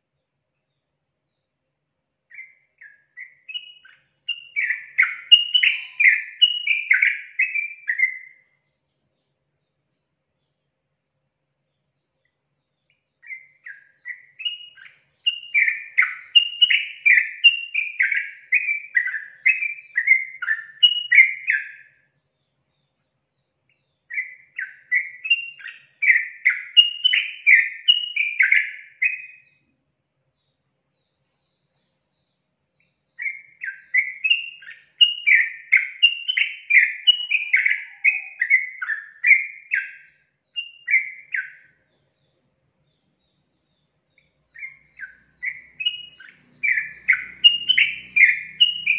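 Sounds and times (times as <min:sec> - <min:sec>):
bulbul singing: 0:02.3 - 0:10.7, 0:11.7 - 0:29.7, 0:30.3 - 0:48.9.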